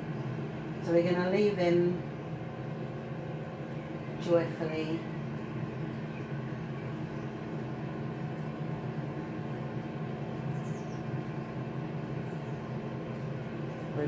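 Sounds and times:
air fryer fan and motor hum: 0:00.0 - 0:14.0.

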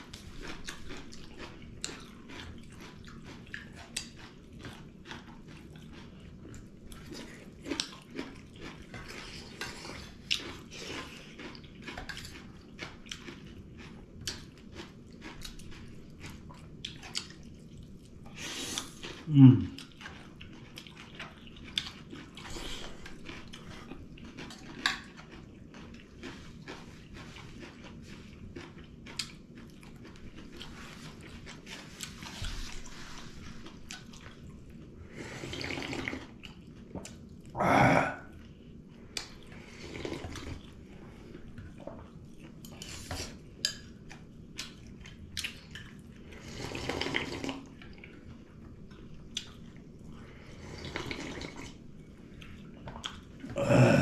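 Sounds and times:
chewing and lip smacks: 0:00.0 - 0:37.6, 0:38.3 - 0:53.6
slurping soup: 0:35.1 - 0:36.4, 0:39.6 - 0:40.7, 0:46.2 - 0:47.7, 0:50.3 - 0:51.8.

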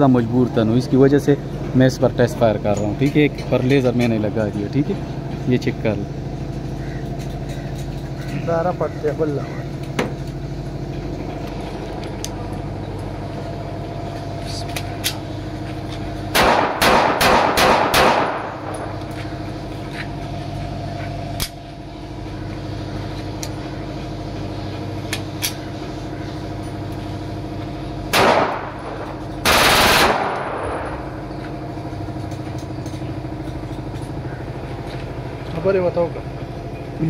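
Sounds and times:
pistol gunshots: 0:16.3 - 0:18.7, 0:28.1 - 0:30.8.

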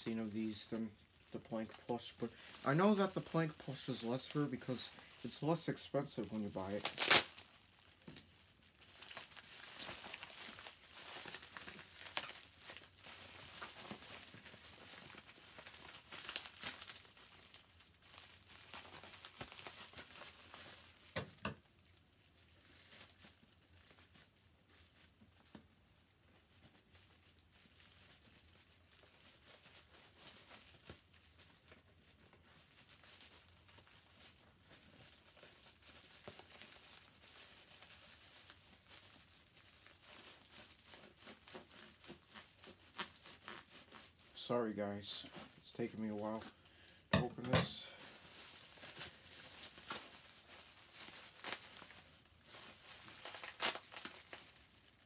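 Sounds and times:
bubble wrap crinkling: 0:00.0 - 0:55.0.

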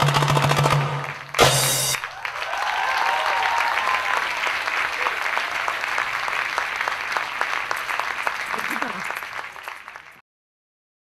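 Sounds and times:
fast drum solo music: 0:00.0 - 0:02.0
audience applause: 0:00.9 - 0:10.2.

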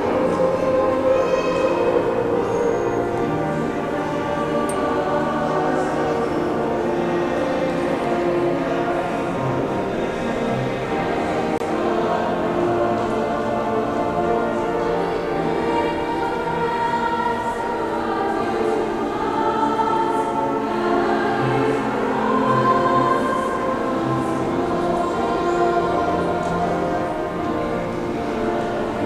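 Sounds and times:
mixed choir singing: 0:00.0 - 0:29.0.

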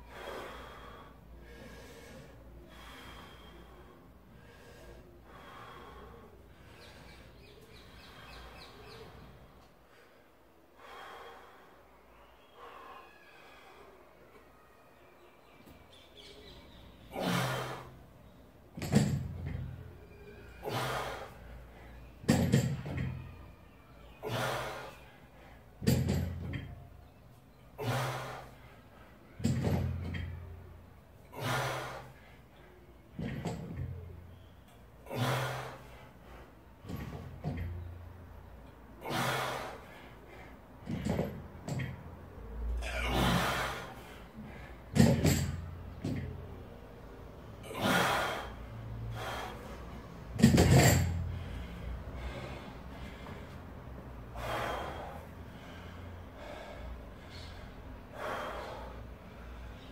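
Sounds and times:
person breathing loudly: 0:00.0 - 0:07.4, 0:47.6 - 0:50.3, 0:51.2 - 0:59.9
barbell thudding on rubber floor: 0:45.0 - 0:46.3, 0:50.4 - 0:51.2.

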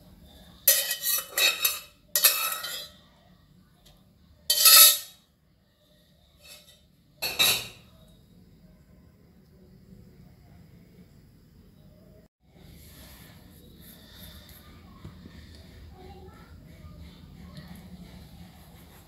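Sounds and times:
pot and colander clattering: 0:00.7 - 0:03.0, 0:04.5 - 0:05.2, 0:06.4 - 0:07.8.

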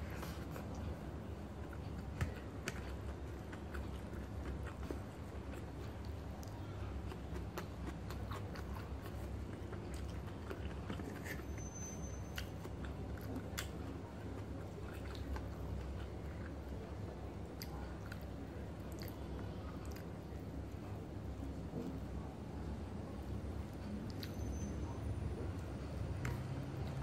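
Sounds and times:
person chewing food: 0:00.0 - 0:20.3
steady low hum: 0:00.0 - 0:27.0.

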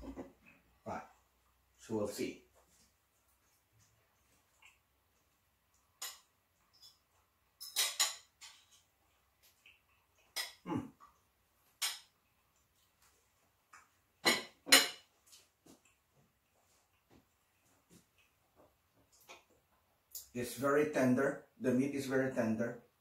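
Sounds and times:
cutlery clinking on a plate: 0:06.0 - 0:07.0, 0:07.6 - 0:08.9, 0:10.3 - 0:10.6, 0:11.8 - 0:12.1, 0:14.2 - 0:15.1.

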